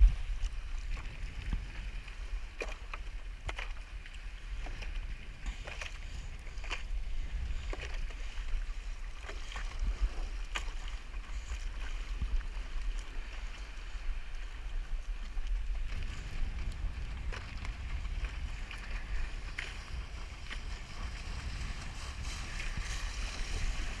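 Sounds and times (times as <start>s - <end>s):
wind buffeting microphone: 0.0s - 2.6s, 4.4s - 24.0s.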